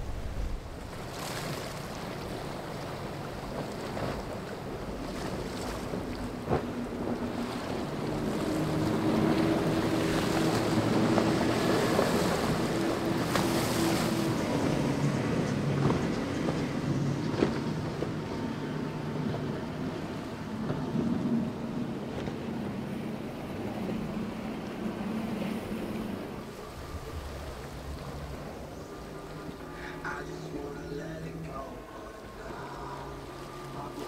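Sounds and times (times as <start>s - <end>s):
spray and churned water hissing: 0.0s - 17.8s
powerboat engines droning: 0.0s - 34.0s.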